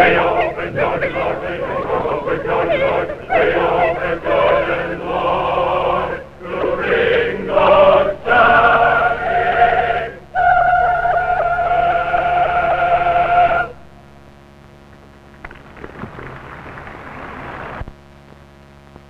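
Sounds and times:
choir singing: 0.0s - 13.8s.

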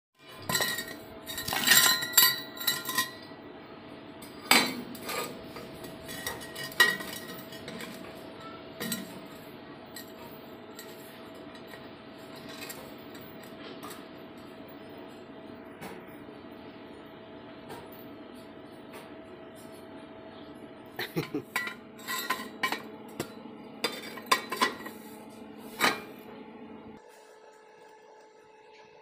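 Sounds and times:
steel pipes clanking: 0.3s - 3.3s, 21.1s - 25.0s.

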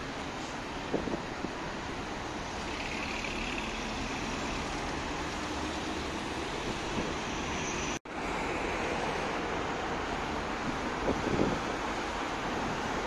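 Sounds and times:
dense road traffic: 0.0s - 13.0s.

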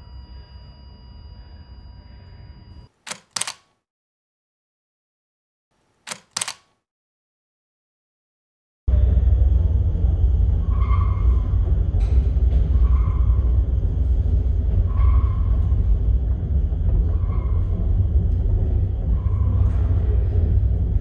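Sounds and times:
lift low rumble: 8.9s - 21.0s.

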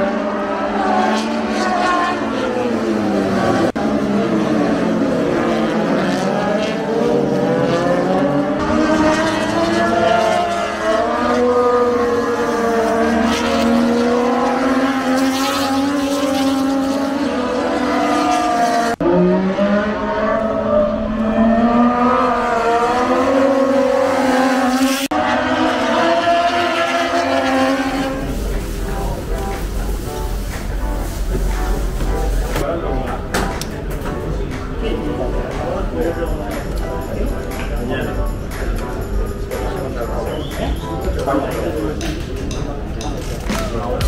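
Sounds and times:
racing motorcycle engines revving: 0.0s - 44.0s.

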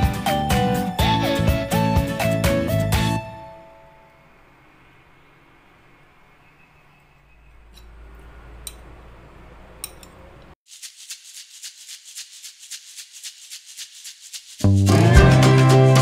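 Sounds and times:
shaker rhythm: 10.6s - 16.0s
background music with shaker: 10.7s - 16.0s.

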